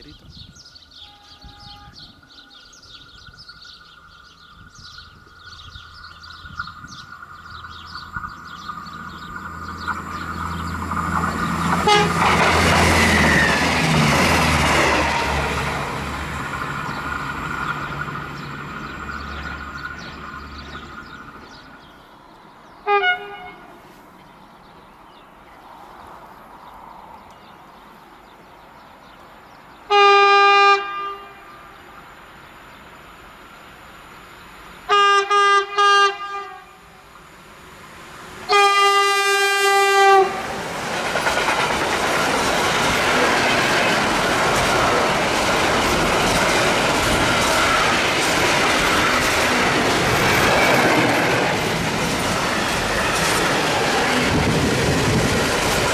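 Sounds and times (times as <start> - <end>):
departing train rumble: 0.8 - 23.8, 29.6 - 55.9
train horn blasts: 1.0 - 2.5, 11.7 - 13.1, 22.8 - 23.9, 29.9 - 32.0, 34.8 - 37.2, 38.5 - 40.6
train wagons rumbling on rails: 1.2 - 23.7, 37.2 - 55.9.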